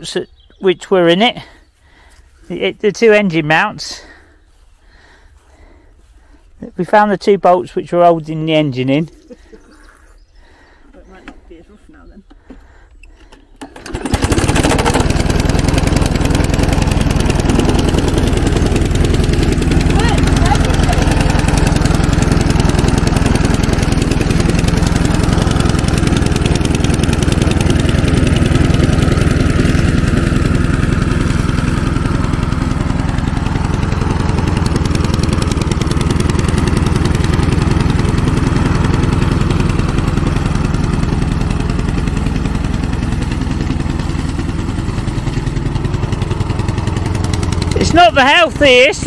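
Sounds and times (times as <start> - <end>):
lawn mower engine running: 1.0 - 9.6, 10.4 - 49.0.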